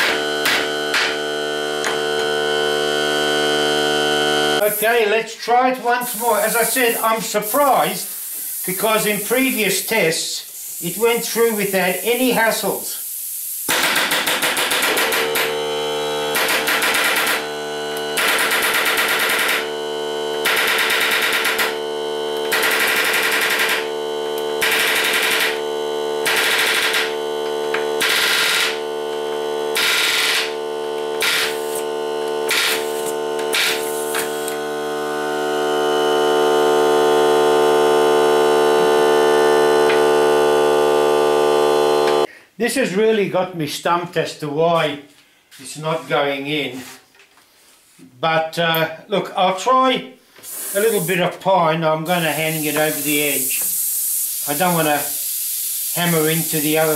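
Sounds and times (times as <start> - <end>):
air compressor humming: 0.0 - 5.1, 6.0 - 42.3, 50.3 - 51.2, 52.0 - 56.9
air nailer rattling bursts: 13.1 - 15.7, 16.3 - 17.5, 18.2 - 19.8, 20.4 - 21.8, 22.4 - 24.0, 24.6 - 27.2, 28.0 - 28.9, 29.7 - 31.9, 32.5 - 34.6, 50.5 - 51.1.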